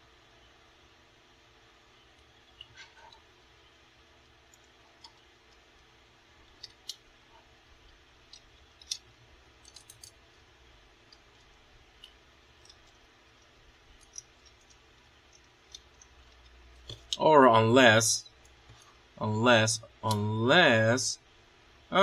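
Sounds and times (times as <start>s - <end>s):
plastic toy parts clicking: 8.3s - 10.2s, 11.0s - 17.2s.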